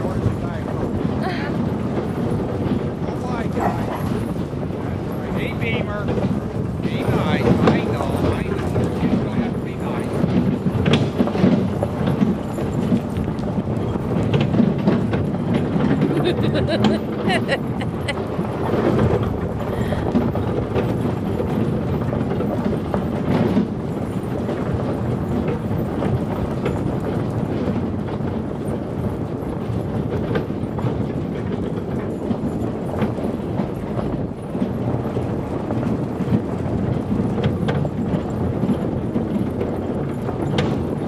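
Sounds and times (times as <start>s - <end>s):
wheels rolling over gravel: 0.0s - 41.0s
dogs' footfalls: 1.8s - 9.2s.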